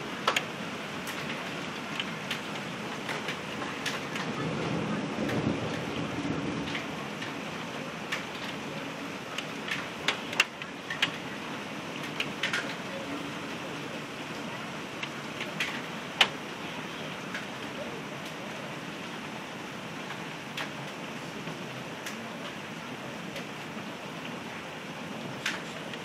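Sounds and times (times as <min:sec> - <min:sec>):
heavy rain and hail hissing: 0:00.0 - 0:26.0
hailstones clicking: 0:00.2 - 0:04.4, 0:05.2 - 0:13.2, 0:14.3 - 0:16.4, 0:25.4 - 0:26.0.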